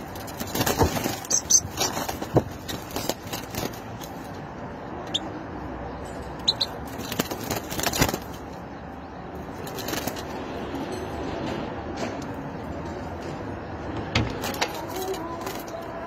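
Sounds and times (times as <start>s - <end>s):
bird flapping against cage bars: 0.0s - 4.4s, 6.4s - 8.6s, 9.4s - 10.4s, 14.3s - 16.0s
city traffic: 0.0s - 16.0s.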